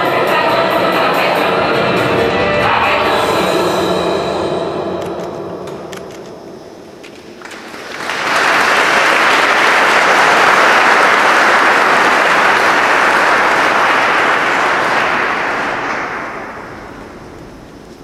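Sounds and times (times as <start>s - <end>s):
audience applauding: 7.0s - 18.0s.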